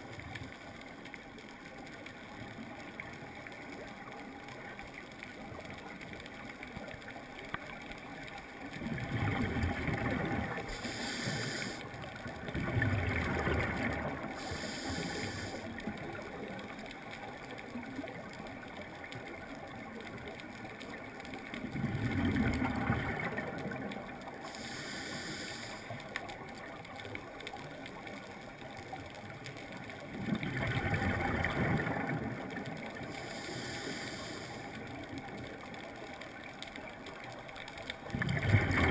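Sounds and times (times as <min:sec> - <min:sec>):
faint underwater hum: 0:00.0 - 0:38.9
exhaled bubbles rumbling: 0:08.6 - 0:11.5, 0:12.2 - 0:16.8, 0:21.4 - 0:24.5, 0:29.0 - 0:33.6, 0:38.0 - 0:38.9
regulator air hiss: 0:10.7 - 0:11.9, 0:14.4 - 0:15.7, 0:24.4 - 0:26.0, 0:33.1 - 0:35.0.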